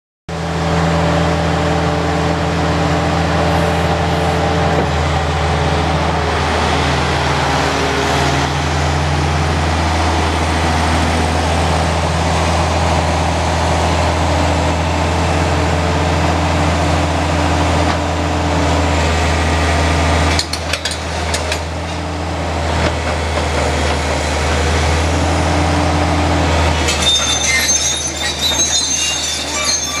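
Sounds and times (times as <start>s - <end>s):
excavator diesel engine running: 0.3s - 30.0s
steel tracks clanking and squealing: 3.4s - 5.0s, 20.3s - 22.2s, 26.5s - 30.0s.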